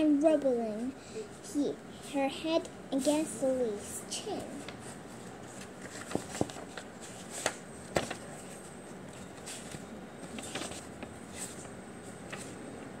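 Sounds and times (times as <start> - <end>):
paper rustling: 4.6 - 12.6.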